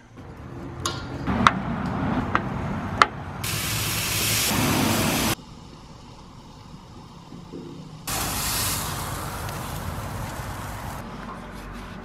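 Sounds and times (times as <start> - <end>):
chicken sizzling on grill: 3.4 - 5.4, 8.1 - 11.0.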